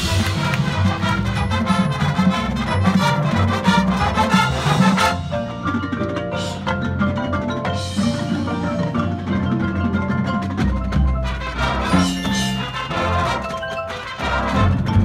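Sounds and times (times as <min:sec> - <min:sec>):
brass horns playing: 0:00.0 - 0:05.7, 0:11.2 - 0:15.0
marimbas and timpani: 0:00.0 - 0:15.0.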